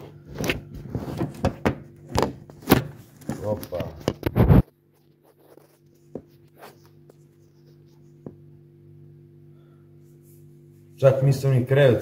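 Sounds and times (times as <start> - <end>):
steady low hum: 0.0 - 12.0
faint taps and rubbing: 5.5 - 8.4.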